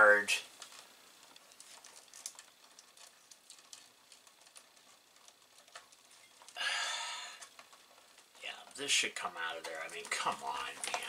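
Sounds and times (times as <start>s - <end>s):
wire bundle clicks and rustles: 0.5s - 6.6s, 7.4s - 8.4s, 9.5s - 11.0s.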